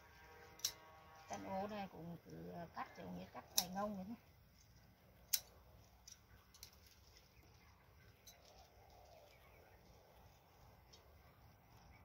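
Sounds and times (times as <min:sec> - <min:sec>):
plant stems being snipped: 0:02.2 - 0:07.3.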